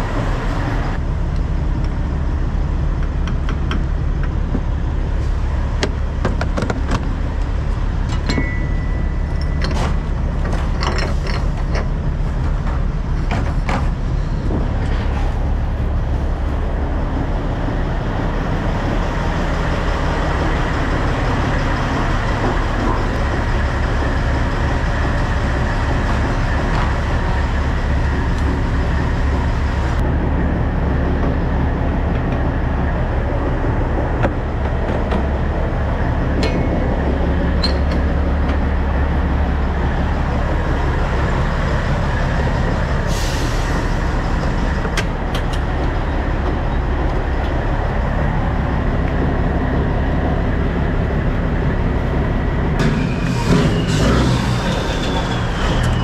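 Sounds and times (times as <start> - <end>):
diesel engine running: 0.0 - 56.0
high squeal: 52.8 - 56.0.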